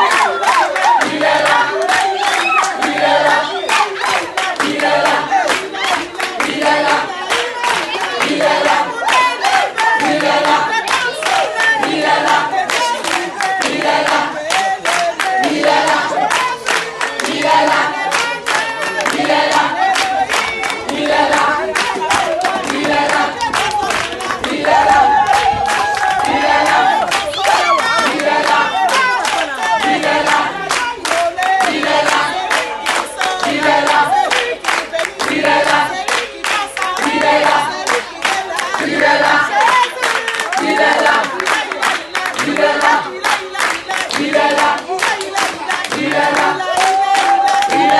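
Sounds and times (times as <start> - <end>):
group of voices singing: 0.0 - 47.9
hand clapping: 0.0 - 47.9.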